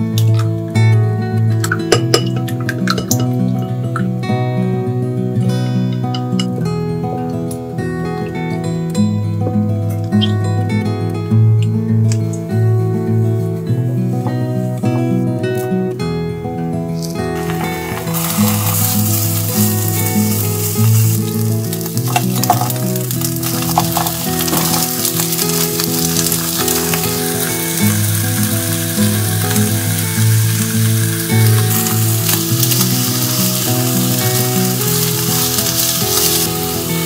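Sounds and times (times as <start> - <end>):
light background music: 0.0 - 37.0
chopsticks stirring in pan: 17.0 - 36.9
fish and vegetables sizzling in oil: 17.0 - 37.0.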